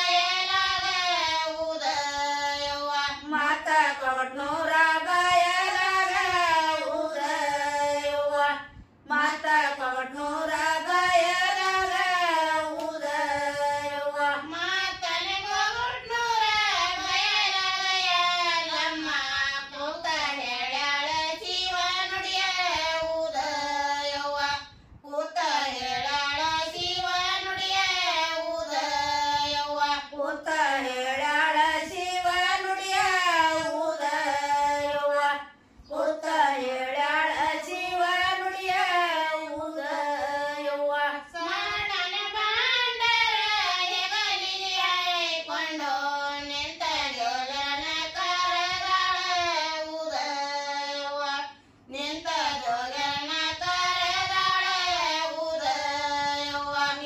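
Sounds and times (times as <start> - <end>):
women singing folk song: 0.0 - 57.0.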